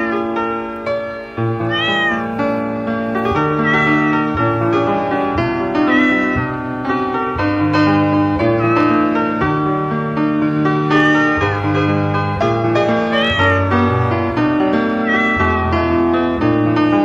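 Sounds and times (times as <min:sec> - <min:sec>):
cat meowing: 0:00.0 - 0:00.4, 0:01.2 - 0:06.7, 0:08.4 - 0:09.4, 0:10.8 - 0:11.9, 0:12.9 - 0:13.9, 0:14.9 - 0:15.7.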